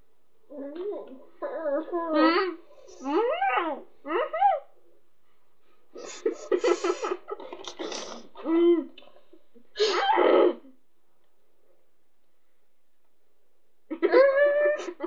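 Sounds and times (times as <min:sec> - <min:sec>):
children laughing muffled: 0:06.0 - 0:09.0, 0:13.9 - 0:15.0.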